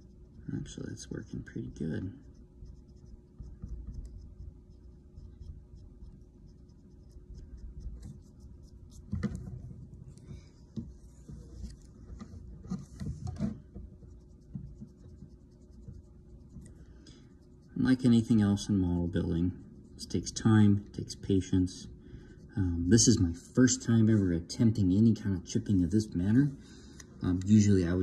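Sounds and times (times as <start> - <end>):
eraser rubbing on plastic: 1.7 - 18.6.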